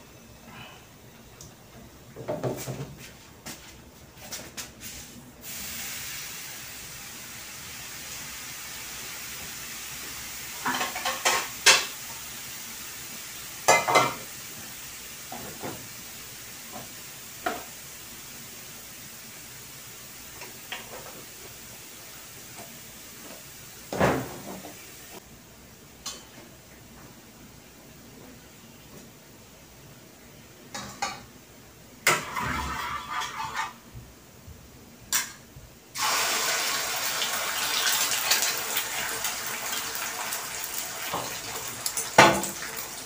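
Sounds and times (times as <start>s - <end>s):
gas burner hissing: 4.8s - 25.2s, 35.2s - 43.0s
metal pans clattering on stovetop: 10.6s - 12.0s, 13.7s - 14.3s, 30.7s - 31.3s, 32.0s - 33.8s.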